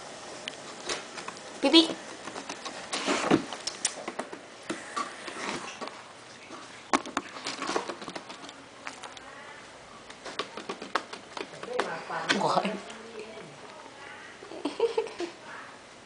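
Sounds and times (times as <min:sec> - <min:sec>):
rabbit gnawing cardboard: 0:00.4 - 0:06.0, 0:06.9 - 0:13.8.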